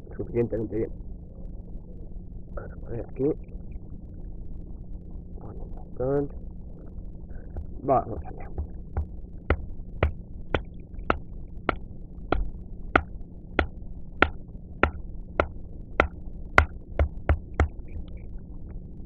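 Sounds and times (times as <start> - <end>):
wooden baton knocking on knife: 8.5 - 17.8.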